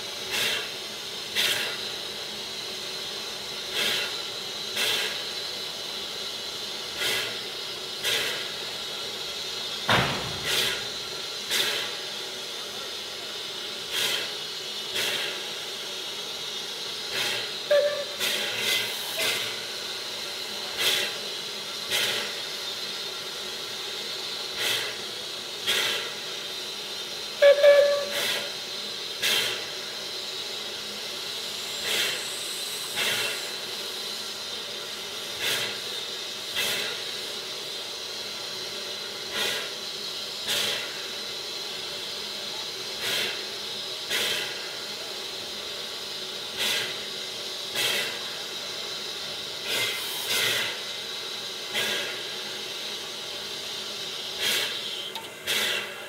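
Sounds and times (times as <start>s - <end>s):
steam exhaust puffs: 0.0s - 56.0s
steam hissing: 0.0s - 56.0s
steam whistle toot: 17.6s - 18.6s, 27.4s - 28.5s.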